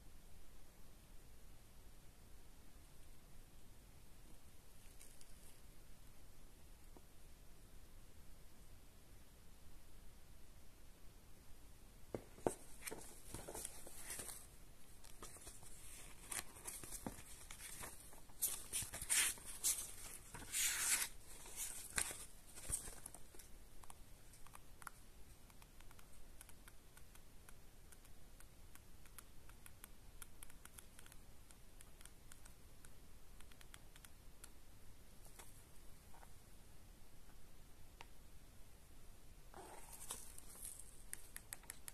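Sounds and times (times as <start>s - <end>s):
paper pages turning and rustling: 12.4s - 23.5s, 39.6s - 41.7s.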